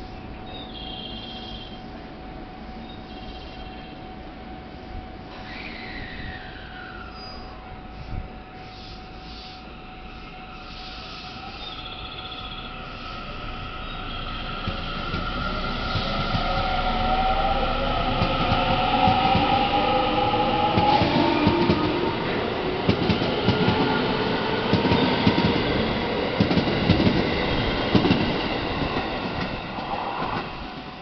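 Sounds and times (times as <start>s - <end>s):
train wheels clacking on rails: 14.5s - 17.3s, 18.1s - 30.9s.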